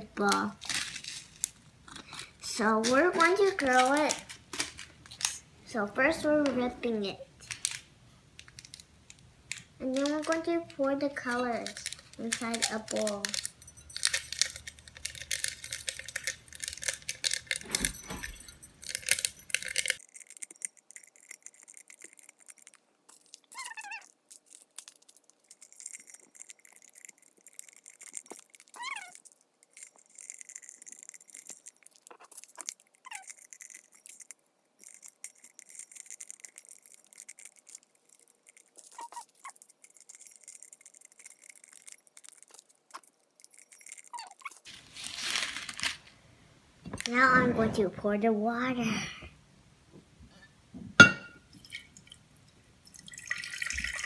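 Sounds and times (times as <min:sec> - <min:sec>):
packets crinkling and tearing: 0:00.2 - 0:05.4, 0:09.5 - 0:46.2
beads rustling and clicking: 0:00.2 - 0:05.5, 0:07.4 - 0:46.2.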